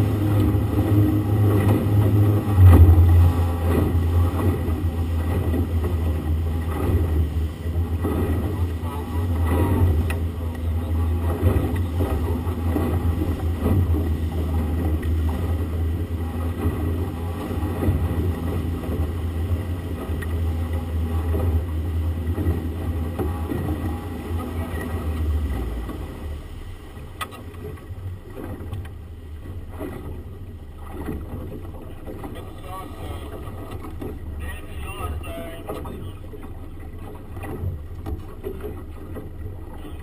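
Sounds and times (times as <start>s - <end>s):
churning wake: 0.0s - 40.0s
outboard motor running: 0.0s - 40.0s.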